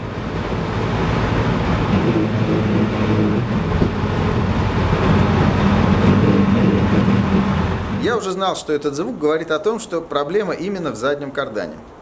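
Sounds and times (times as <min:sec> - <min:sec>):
drivetrain rumble in car cabin: 0:00.0 - 0:08.1.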